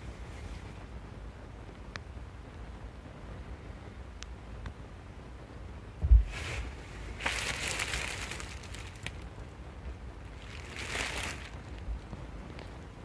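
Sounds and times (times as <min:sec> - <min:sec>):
plastic cover crinkly rustling: 0:06.2 - 0:09.4, 0:10.2 - 0:12.7.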